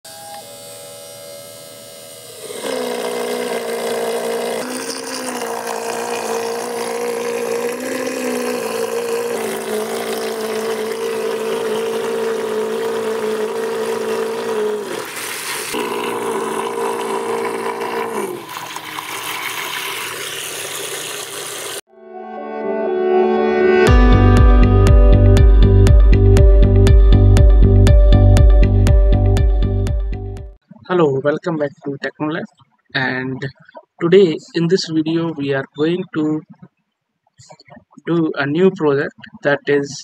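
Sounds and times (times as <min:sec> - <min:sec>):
electric motor whine: 0:00.1 - 0:18.9
water churning and splashing: 0:02.5 - 0:21.8, 0:37.4 - 0:39.6.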